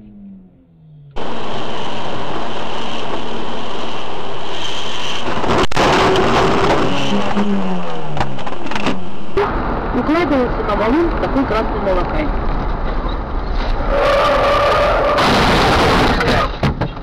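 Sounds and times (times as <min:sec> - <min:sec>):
rain and wet road hiss: 0:01.2 - 0:12.7.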